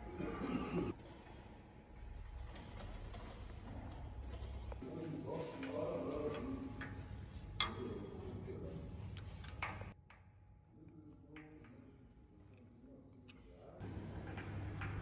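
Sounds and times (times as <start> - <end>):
metal clicks and clinks: 7.6 - 8.1.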